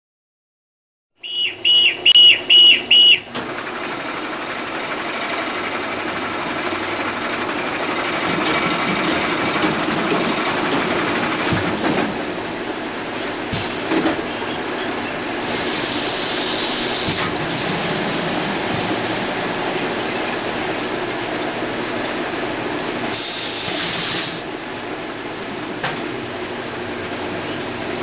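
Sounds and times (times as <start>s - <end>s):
filling machine whirring: 1.2s - 28.0s
short high beeps: 1.3s - 3.2s.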